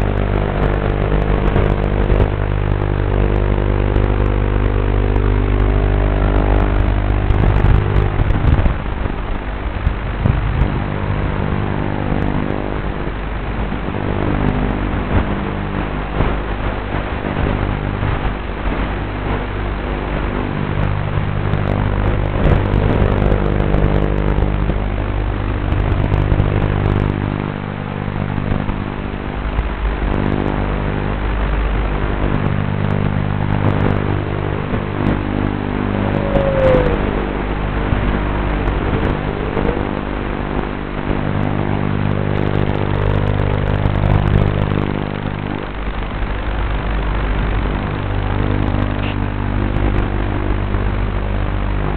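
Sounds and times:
quadcopter motors buzzing: 0:34.9 - 0:40.4.

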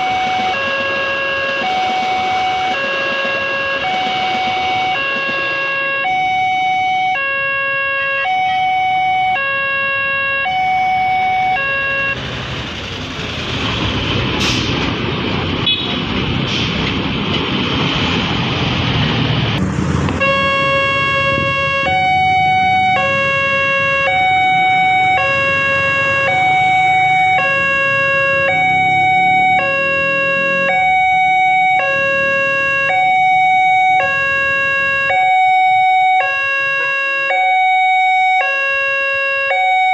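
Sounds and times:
two-tone crossing alarm: 0:00.0 - 0:12.2, 0:20.2 - 0:39.9
loud rumbling noise: 0:10.9 - 0:35.2.

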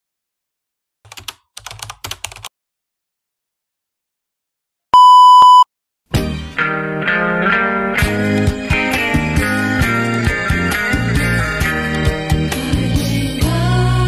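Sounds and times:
keyboard typing clicks: 0:01.1 - 0:02.5
loud electronic beep: 0:05.0 - 0:05.7
guitar music: 0:06.2 - 0:12.4.

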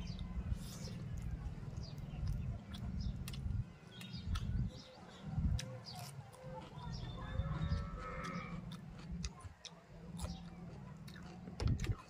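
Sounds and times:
chewing: 0:00.1 - 0:12.0
animal calling: 0:06.8 - 0:08.8.

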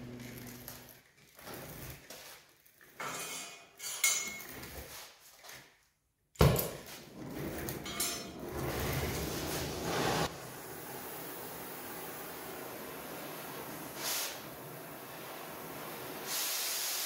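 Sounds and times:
torch burning with rushing hiss: 0:08.4 - 0:17.0.

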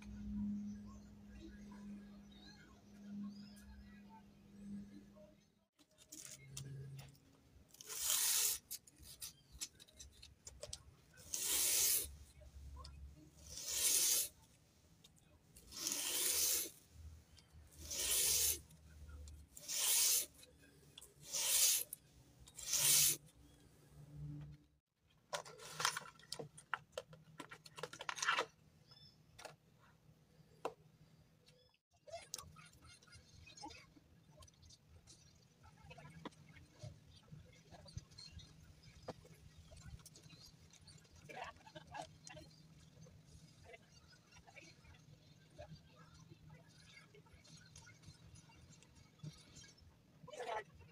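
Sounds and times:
rubbing on sandpaper: 0:07.8 - 0:09.3, 0:11.2 - 0:12.2, 0:13.4 - 0:14.4, 0:15.7 - 0:16.8, 0:17.8 - 0:18.7, 0:19.6 - 0:20.4, 0:21.2 - 0:22.0, 0:22.6 - 0:23.2.

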